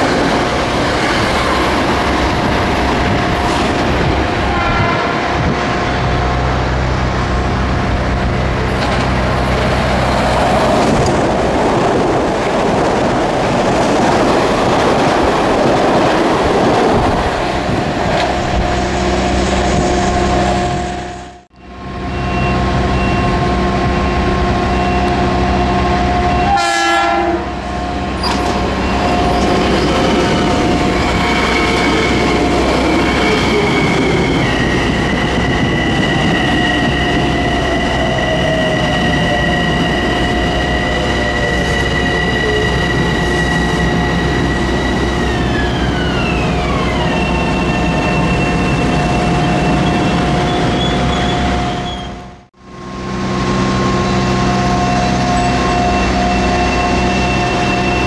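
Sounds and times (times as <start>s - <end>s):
train rumble: 0.0s - 58.0s
wheels squealing: 28.2s - 52.4s.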